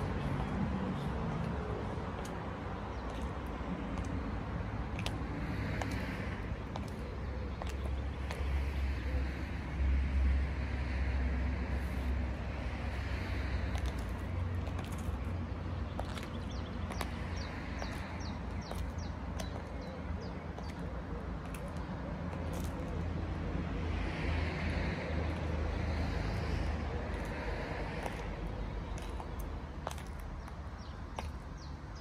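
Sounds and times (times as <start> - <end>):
high heels clicking on paving: 0.0 - 8.6, 13.2 - 23.1, 26.4 - 32.0.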